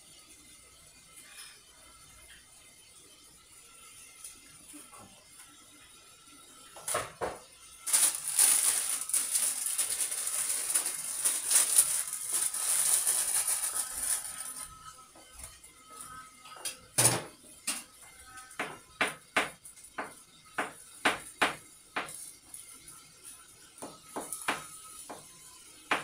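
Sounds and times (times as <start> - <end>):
plastic bag crinkling: 7.8 - 14.9.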